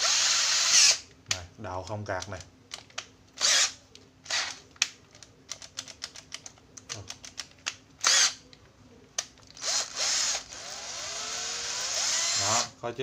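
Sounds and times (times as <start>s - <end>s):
drill motor whirring: 0.0s - 1.0s, 3.4s - 3.7s, 9.6s - 12.7s.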